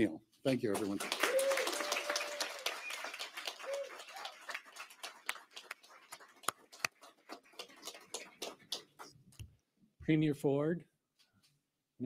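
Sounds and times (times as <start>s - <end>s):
audience clapping: 0.5s - 9.2s.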